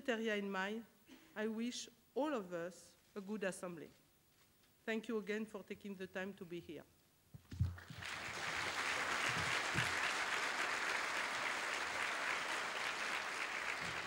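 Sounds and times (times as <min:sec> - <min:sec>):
audience applauding: 0:07.8 - 0:14.0.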